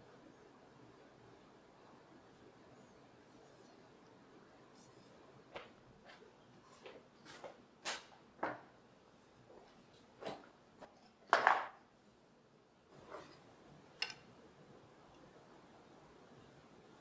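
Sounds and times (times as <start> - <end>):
wooden pieces knocking on workbench: 11.3 - 11.8.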